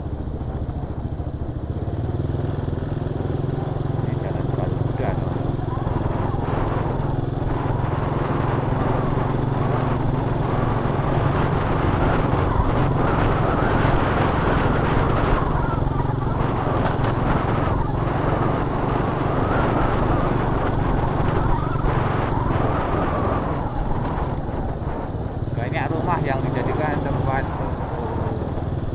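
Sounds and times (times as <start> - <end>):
motorcycle engine running: 0.0 - 28.9.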